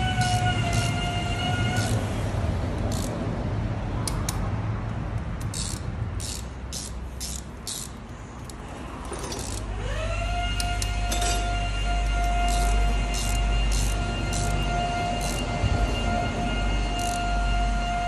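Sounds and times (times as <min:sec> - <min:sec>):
metal clicks of socket wrench: 0:02.8 - 0:03.2, 0:04.0 - 0:09.7, 0:12.4 - 0:14.6
rising whine: 0:09.8 - 0:18.0.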